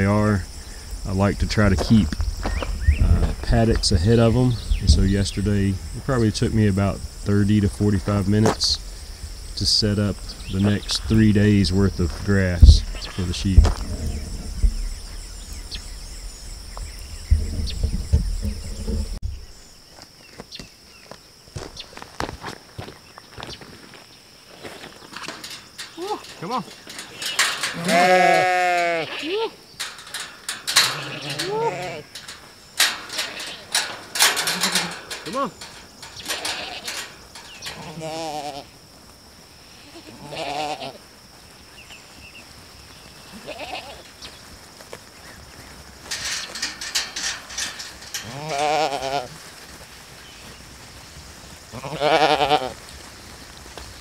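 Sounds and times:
insects chirring: 0.0s - 54.0s
sheep bleating: 27.7s - 29.6s, 30.8s - 32.1s, 39.9s - 41.0s, 51.8s - 52.8s.

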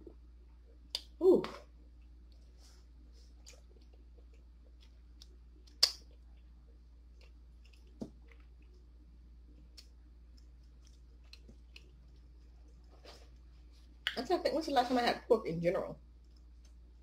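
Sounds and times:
soft chewing: 0.0s - 14.2s, 16.0s - 17.0s.

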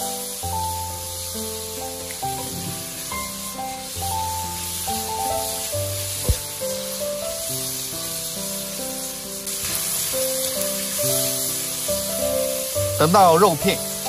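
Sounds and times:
food sizzling in hot oil: 0.0s - 14.0s
spatula stir-frying in wok: 0.0s - 14.0s
background music: 8.7s - 14.0s.

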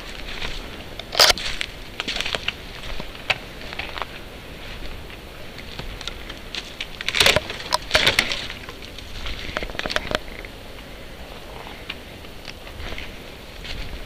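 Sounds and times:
footsteps on dry undergrowth: 0.0s - 14.0s
twigs snapping underfoot: 5.6s - 10.5s.

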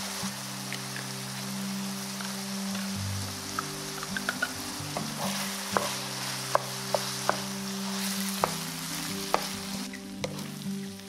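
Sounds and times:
soft music with low notes: 0.0s - 11.0s
steady hiss: 0.0s - 11.0s.

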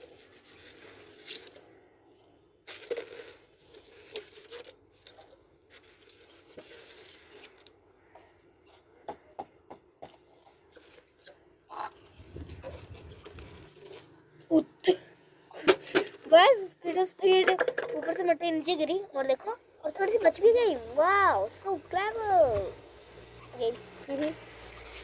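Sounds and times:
soil rustling and scraping: 0.0s - 8.8s, 10.2s - 14.3s, 23.5s - 25.0s.

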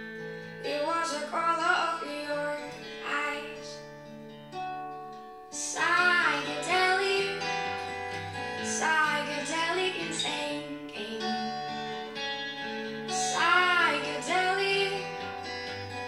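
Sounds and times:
guitar: 0.0s - 16.0s
person singing: 0.6s - 3.9s, 5.5s - 16.0s.

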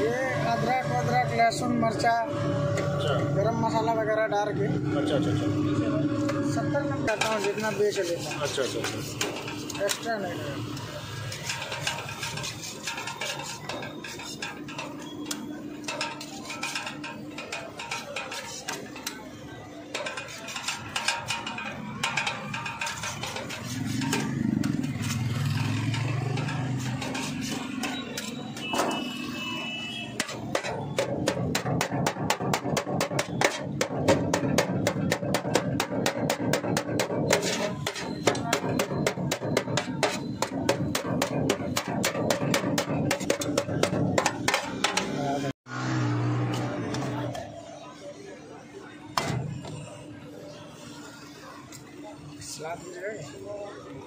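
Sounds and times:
knife chopping on steel tray: 30.2s - 45.2s.

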